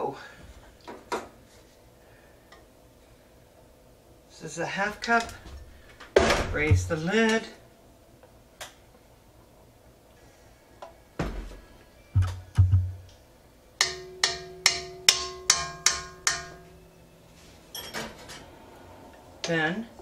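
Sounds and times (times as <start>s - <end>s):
dull thumps: 6.2s - 7.0s, 12.2s - 13.0s
cup tapping ringing metal bowl: 13.8s - 16.9s.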